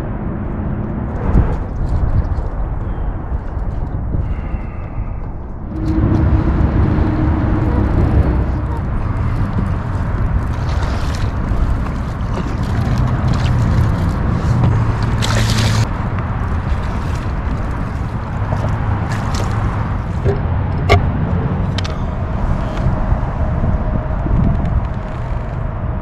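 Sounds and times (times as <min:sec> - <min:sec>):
wind on microphone: 0:00.0 - 0:26.0
splashy rush: 0:05.7 - 0:20.5
water sloshing against kayak: 0:05.7 - 0:23.5.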